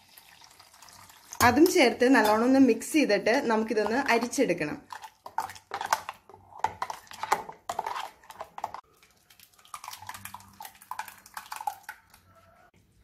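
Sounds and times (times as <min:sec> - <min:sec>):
wet squelching of vegetable paste: 0:03.5 - 0:12.7.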